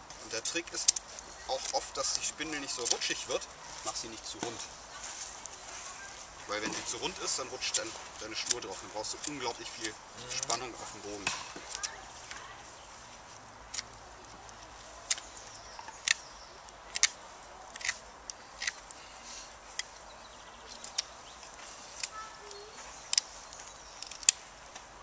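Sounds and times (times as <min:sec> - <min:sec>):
knife carving wood: 0:15.0 - 0:19.0.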